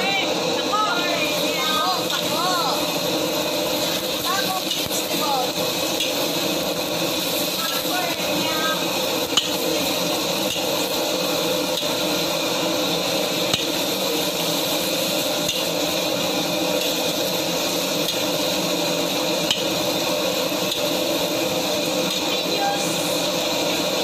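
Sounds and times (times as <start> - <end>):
leaves stir-frying in a wok: 0.0 - 24.0.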